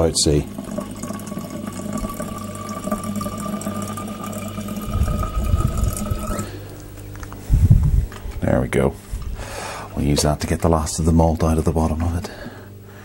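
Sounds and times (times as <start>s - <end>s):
tap water filling bottle: 0.0s - 8.3s.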